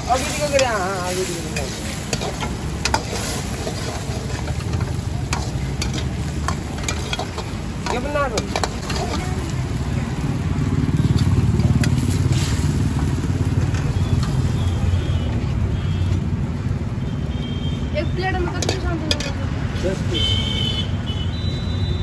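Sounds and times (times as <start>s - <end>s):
ladle scraping in a wok: 0.0s - 9.8s, 11.0s - 14.4s
food sizzling: 0.0s - 17.2s, 17.9s - 20.3s
vehicle engine rumble: 0.0s - 20.7s.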